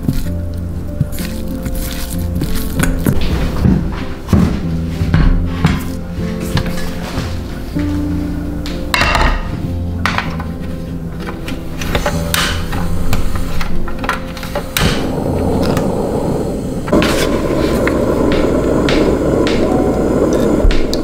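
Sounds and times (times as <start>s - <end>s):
gas burner flame hissing: 11.7s - 21.0s.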